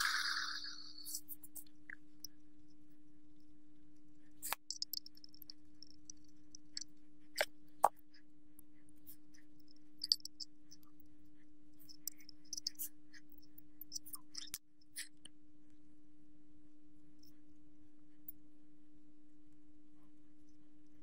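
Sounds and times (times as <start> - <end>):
steady low hum: 0.0 - 21.0
sharp clicks: 4.4 - 6.8.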